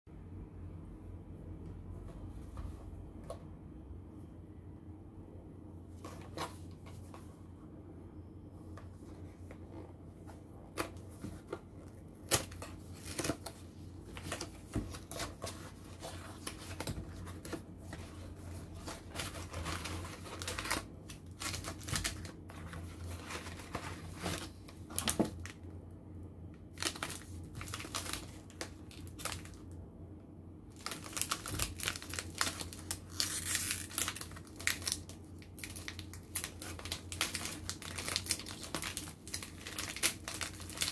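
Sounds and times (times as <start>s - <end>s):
wrapper crinkling as torn open: 18.9s - 22.4s, 26.7s - 29.6s, 30.8s - 40.9s.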